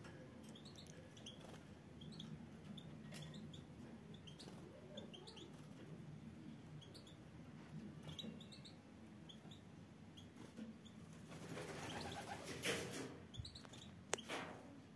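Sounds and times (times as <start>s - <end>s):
finches chirping: 0.5s - 5.6s, 6.7s - 7.3s, 8.0s - 12.2s, 13.3s - 14.3s.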